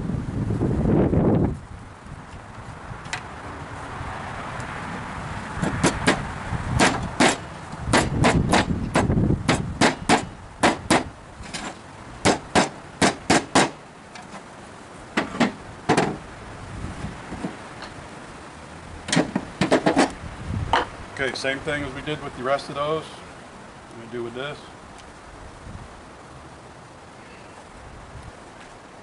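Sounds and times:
hammer striking wood block: 6.8 - 11.1, 12.2 - 13.8.

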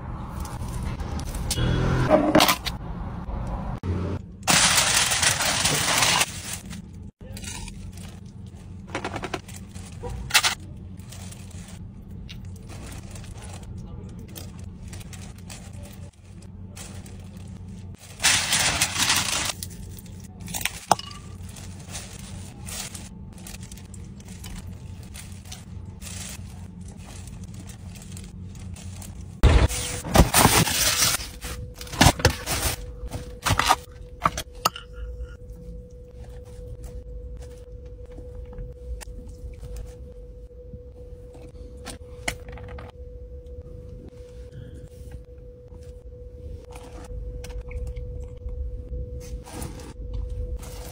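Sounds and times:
steady low hum: 4.2 - 50.9
foil and plastic crinkling: 4.5 - 33.9.

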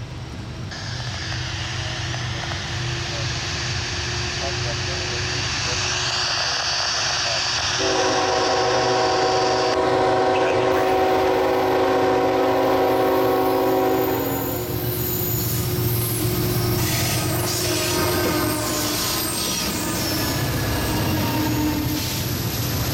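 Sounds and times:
locomotive rumbling: 0.0 - 22.9
locomotive air horn blast: 7.8 - 14.7, 16.8 - 22.2.

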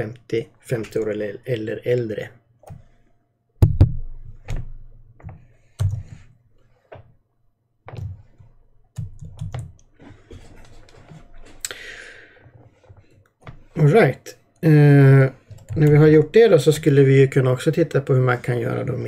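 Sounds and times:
computer keyboard key presses: 5.8 - 6.1, 9.0 - 9.9.

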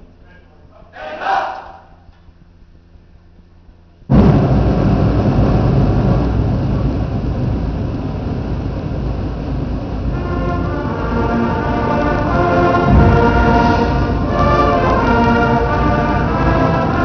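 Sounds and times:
school band brass and percussion: 10.0 - 17.0.

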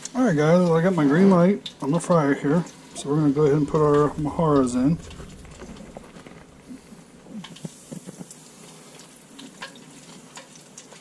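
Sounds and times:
hot oil sizzling in fryer: 0.0 - 11.0
small crackles and clicks: 0.0 - 11.0.

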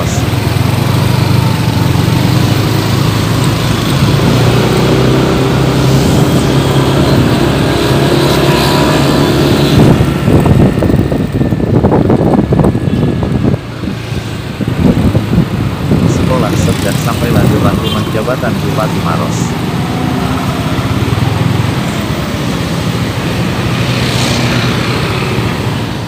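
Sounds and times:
vehicle engine running: 0.0 - 13.8
wind buffeting microphone: 2.0 - 17.8.

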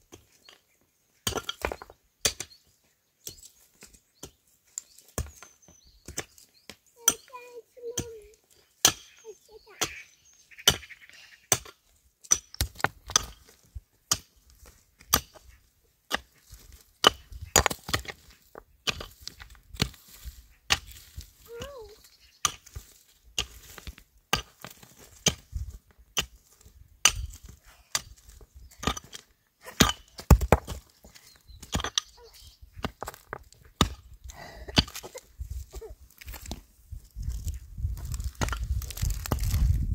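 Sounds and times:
wood chopping strikes: 28.8 - 30.9.

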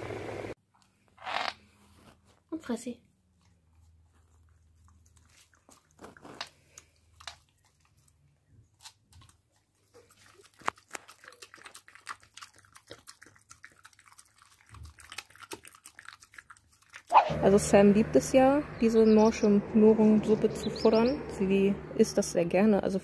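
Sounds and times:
dog chewing: 3.4 - 17.6.

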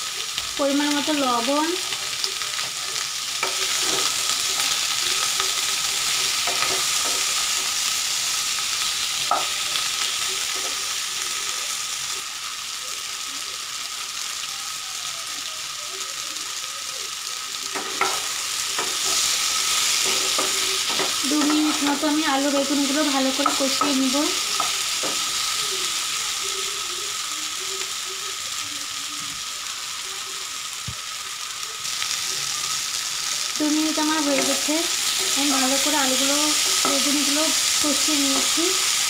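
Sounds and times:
vegetables sizzling in oil: 0.0 - 39.0
spatula scraping and knocking pan: 6.3 - 7.4, 17.7 - 22.2, 22.8 - 25.4.

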